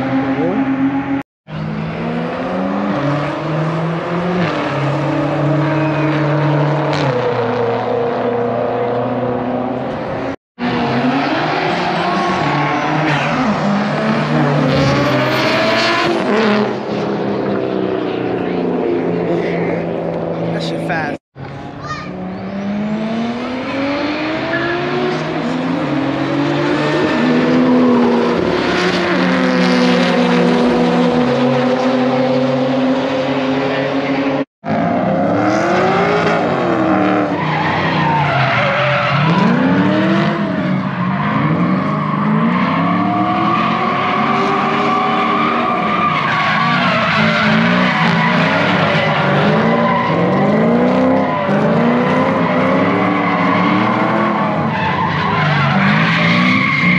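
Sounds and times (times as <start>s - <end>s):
drifting cars revving: 0.0s - 56.9s
racing car engines revving: 0.0s - 56.9s
tire squeal and skidding: 2.1s - 7.7s, 10.6s - 17.0s, 22.2s - 33.2s, 34.8s - 56.9s.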